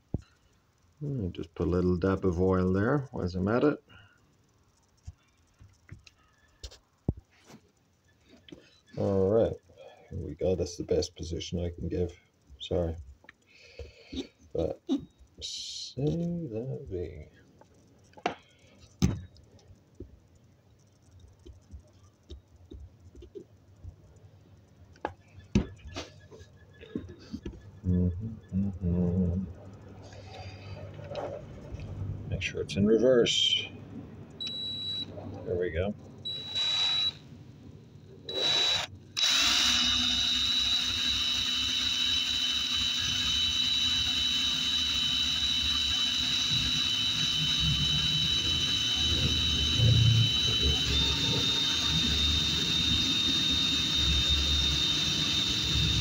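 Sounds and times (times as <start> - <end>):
electric drill motor whining: 34.4 - 35.0, 36.2 - 37.2, 38.3 - 56.0.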